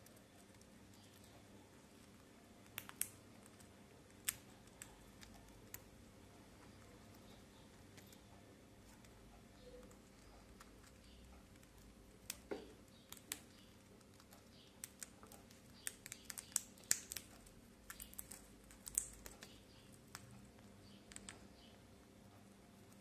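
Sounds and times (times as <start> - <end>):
parrot cracking seeds: 2.6 - 5.9, 11.6 - 21.4.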